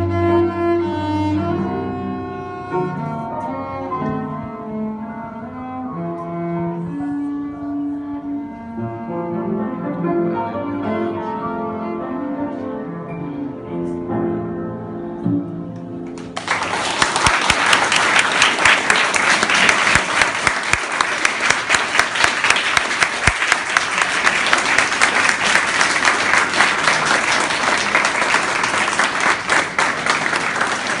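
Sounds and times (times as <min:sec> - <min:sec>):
music: 0:00.0 - 0:19.5, 0:20.1 - 0:31.0
children applauding: 0:16.1 - 0:31.0.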